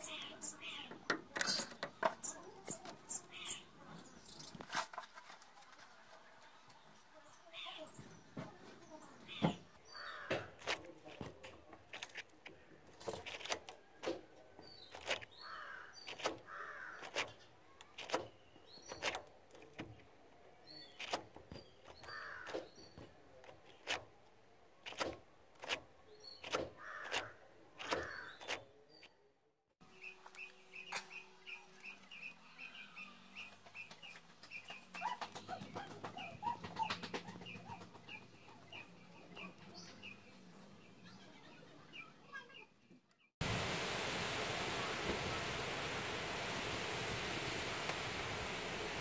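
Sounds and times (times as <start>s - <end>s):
crows cawing: 10.0s - 10.5s, 15.4s - 17.0s, 22.1s - 22.6s, 26.8s - 27.3s.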